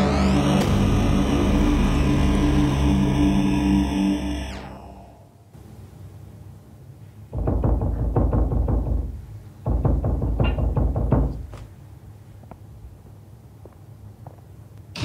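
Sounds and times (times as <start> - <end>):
heavy pounding on a door: 7.3 - 11.6.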